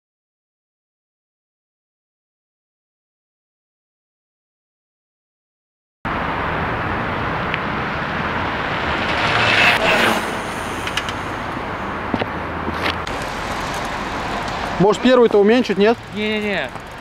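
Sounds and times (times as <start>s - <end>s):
steady traffic noise: 6.1s - 17.0s
electric bike riding past on asphalt: 6.2s - 12.1s, 12.8s - 17.0s.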